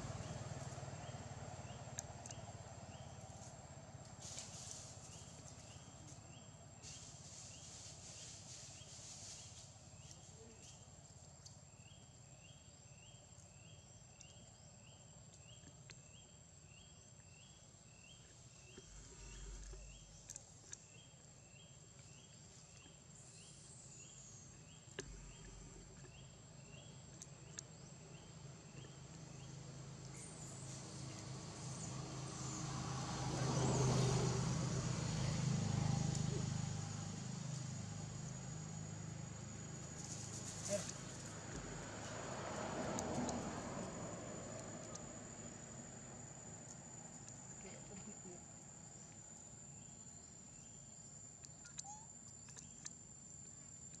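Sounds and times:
low hum: 18.5 - 22.9.

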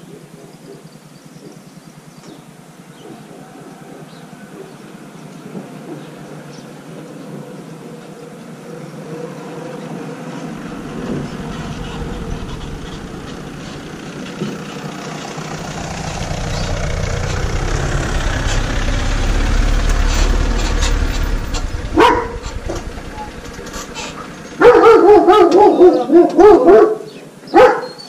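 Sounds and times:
van engine approaching: 0.8 - 26.6
light clatter: 10.5 - 25.7.

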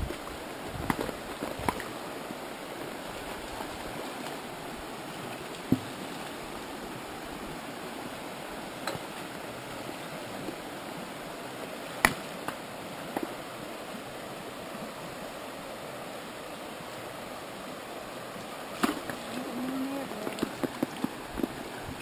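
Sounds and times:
rocky creek running: 0.0 - 22.0.

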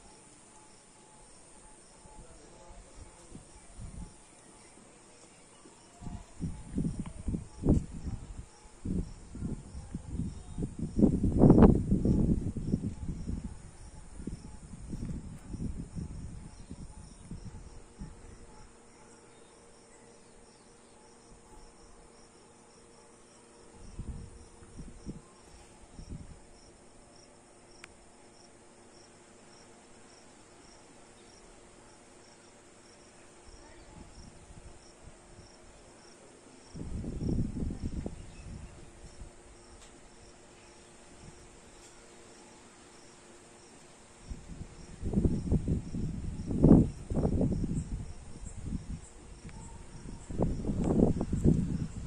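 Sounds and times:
cricket chirping: 0.0 - 4.8, 5.4 - 52.0
low microphone rumbles: 6.0 - 18.7, 23.7 - 26.4, 36.8 - 39.4, 44.2 - 52.0.

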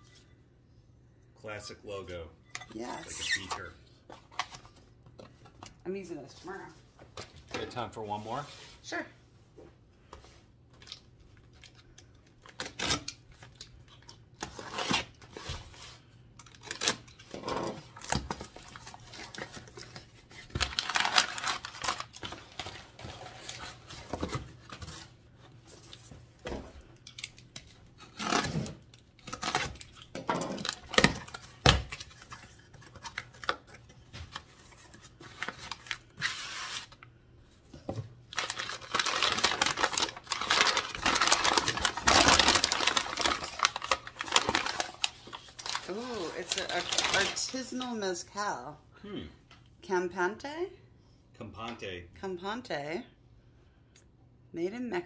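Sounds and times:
paper crinkling: 38.3 - 47.8.

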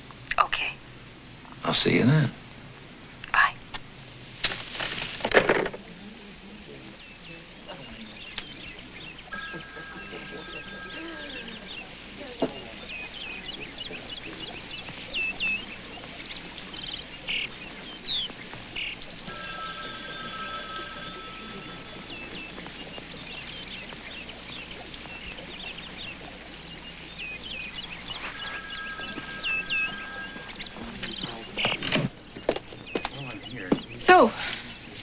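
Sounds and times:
birds chirping: 0.0 - 3.8, 4.5 - 35.0
held electronic tone: 9.3 - 11.9, 19.3 - 23.8, 27.6 - 31.8.

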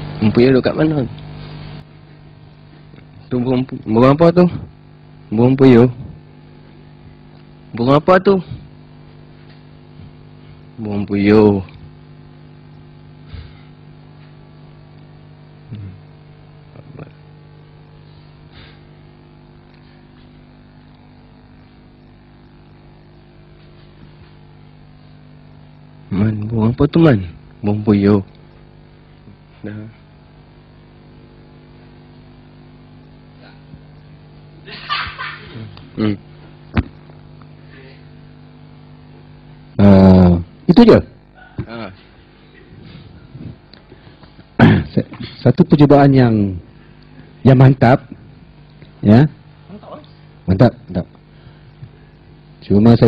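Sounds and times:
electrical mains hum: 0.0 - 53.0
burst of laughter: 34.7 - 35.7.

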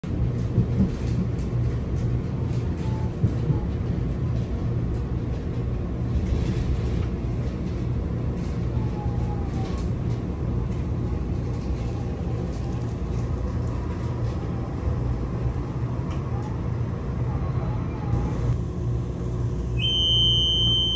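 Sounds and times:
train rumbling: 0.0 - 20.9
faint high squeals: 19.8 - 20.9.

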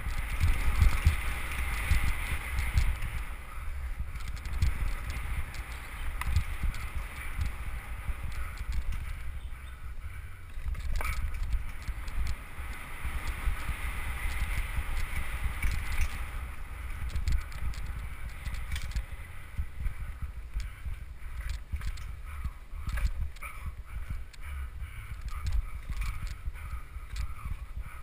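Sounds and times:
bike rattling: 0.0 - 28.0
wind buffeting microphone: 0.0 - 28.0
chain and frame clicks and knocks: 17.0 - 19.0, 21.4 - 22.2.

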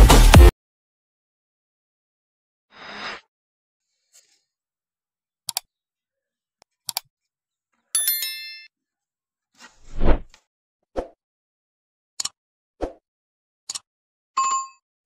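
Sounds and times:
mouse clicks: 5.5 - 5.7, 6.9 - 7.1
bright bell ding: 8.0 - 8.7.

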